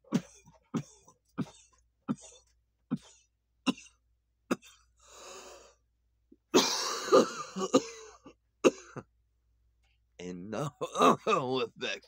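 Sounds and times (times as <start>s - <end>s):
man coughing: 0.0s - 4.8s, 6.5s - 9.1s, 10.7s - 11.7s
wheezy breath out: 5.0s - 5.8s.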